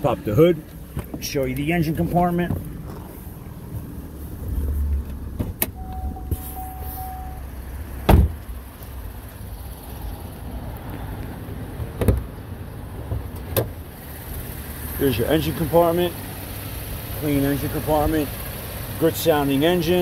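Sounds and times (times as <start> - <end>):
car engine idling: 0.0 - 20.0
car door shutting: 4.9 - 7.4, 8.0 - 8.5, 11.9 - 12.3.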